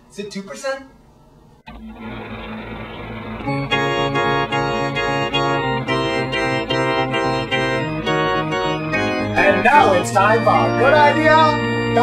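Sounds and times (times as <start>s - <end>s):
organ playing bouncy chords: 1.7s - 12.0s.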